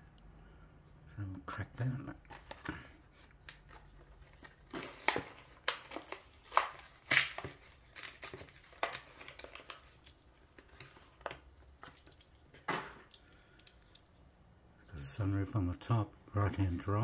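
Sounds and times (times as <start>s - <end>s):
plastic packaging crackling and tearing: 2.2s - 14.0s.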